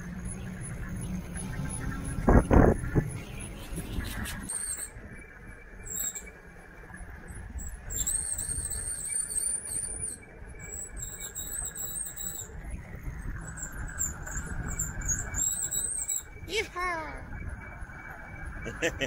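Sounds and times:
wind rumbling on microphone: 0.0s - 5.8s, 6.9s - 16.5s
high-pitched squeal: 13.4s - 16.4s.

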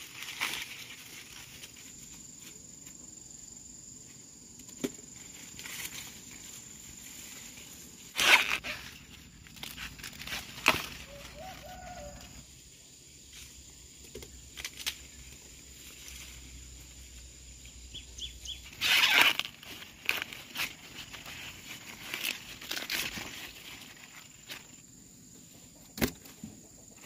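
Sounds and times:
longer rustle: 4.0s - 12.4s
sharp rustling cracks: 8.0s - 11.4s.

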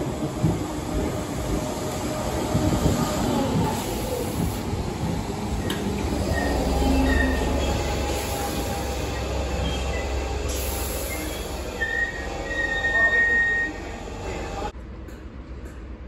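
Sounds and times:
train coaches rumbling: 0.0s - 16.0s
high-pitched brake squeal: 6.2s - 13.9s.

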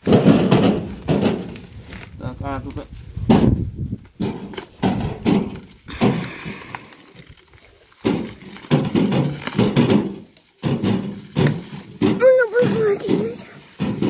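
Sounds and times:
dull knocks and thumps: 0.0s - 1.7s, 3.2s - 6.4s, 8.0s - 14.0s.

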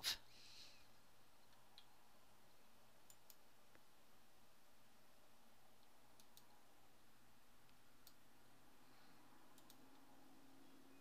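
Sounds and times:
computer mouse clicks: 1.4s - 2.0s, 3.0s - 3.9s, 5.8s - 6.6s, 7.6s - 8.2s, 9.5s - 10.1s.

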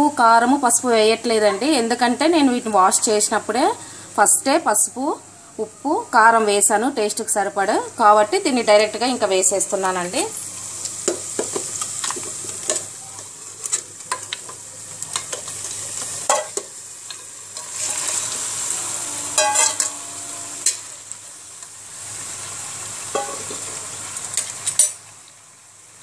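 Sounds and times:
meat sizzling in oil: 6.8s - 26.0s
spatula scraping a pot: 17.6s - 20.8s.

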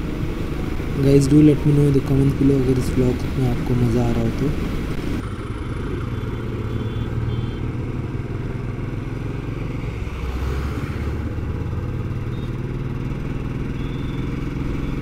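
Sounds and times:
rushing wind: 0.0s - 6.0s
road noise: 0.0s - 15.0s
motorcycle engine running: 11.3s - 15.0s.

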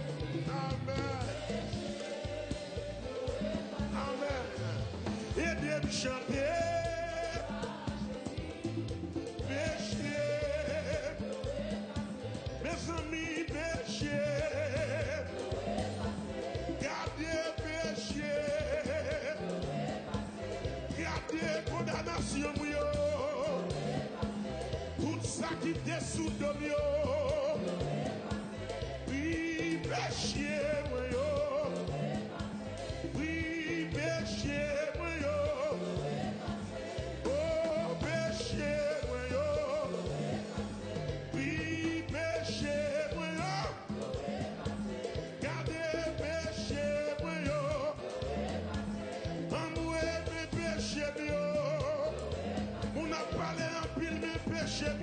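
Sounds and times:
gospel band with bass line: 0.0s - 55.0s
man singing with vibrato: 0.0s - 55.0s.

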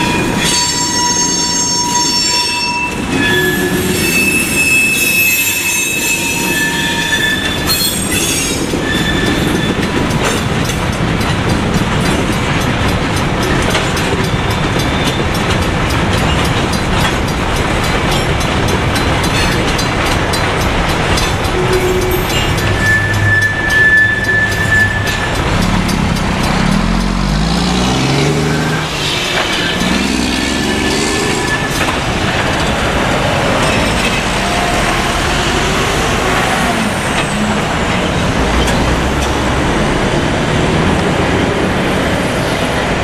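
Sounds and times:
crossing bell ringing: 0.0s - 42.4s
passing road traffic: 2.8s - 43.0s
diesel trucks accelerating: 6.9s - 43.0s.

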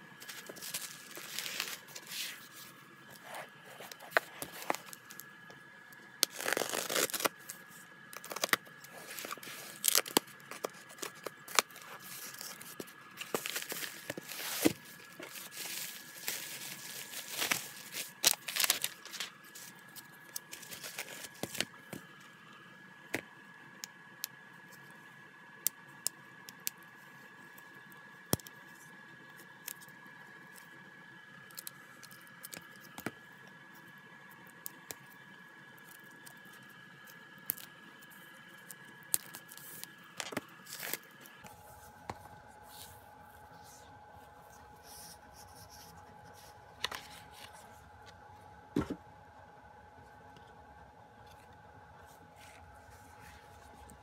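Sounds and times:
plastic packaging crinkling and tearing: 0.2s - 5.4s, 6.2s - 21.8s.

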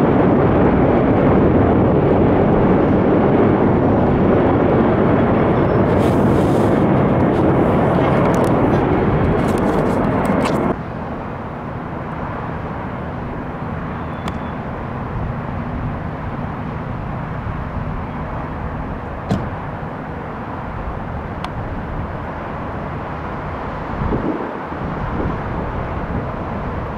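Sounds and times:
airport background rumble: 0.0s - 26.9s
distant helicopter rotors: 0.0s - 26.9s.

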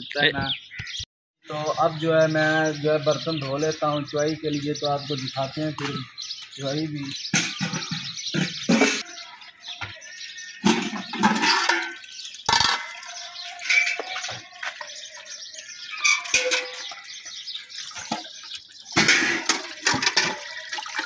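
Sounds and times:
water sloshing and splashing: 10.0s - 21.0s.

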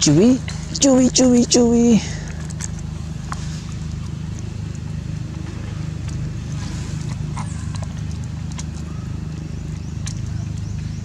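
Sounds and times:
low motor drone: 0.0s - 11.0s.

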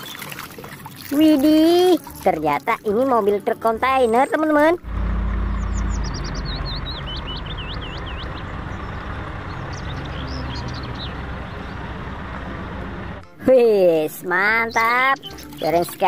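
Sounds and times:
high chirps: 4.1s - 11.2s
truck diesel engine rumble: 4.4s - 14.7s.

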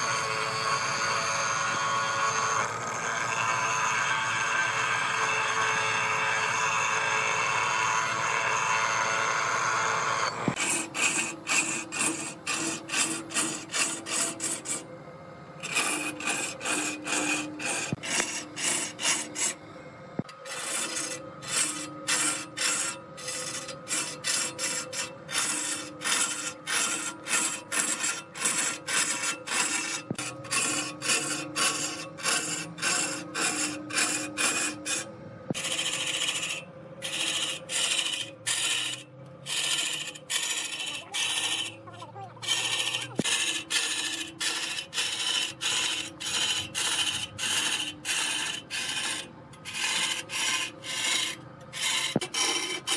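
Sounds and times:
grinding wheel grinding steel: 0.0s - 52.9s
turning tool scraping wood: 10.2s - 14.8s, 15.6s - 19.6s, 20.2s - 52.9s
faint hum: 14.3s - 20.4s.

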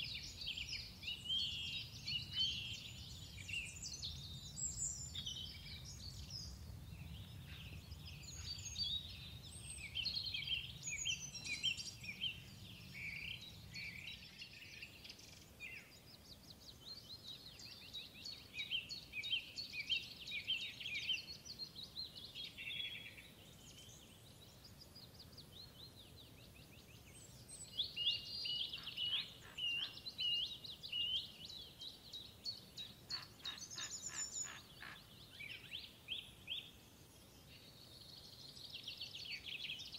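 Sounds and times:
songbirds chirping and twittering: 0.0s - 39.9s.

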